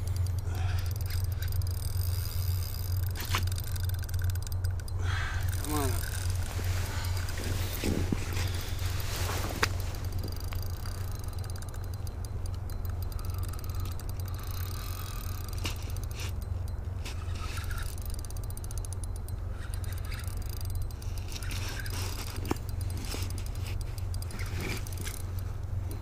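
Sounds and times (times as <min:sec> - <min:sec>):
fishing reel clicking: 0:00.0 - 0:09.0, 0:09.6 - 0:26.0
wind rumble on microphone: 0:06.4 - 0:10.4.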